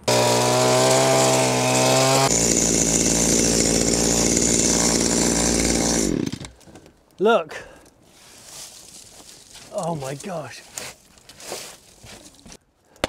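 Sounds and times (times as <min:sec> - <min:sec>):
chainsaw cutting brush: 0:00.0 - 0:06.6.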